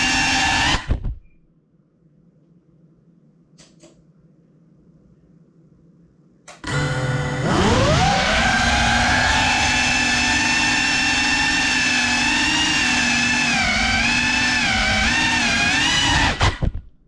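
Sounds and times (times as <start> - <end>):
drone motors whining: 6.6 - 16.8.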